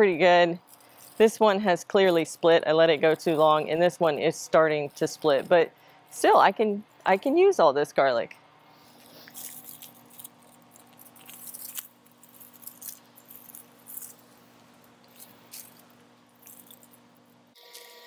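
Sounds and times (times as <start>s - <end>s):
dry plant stalks rustling: 8.8s - 17.0s.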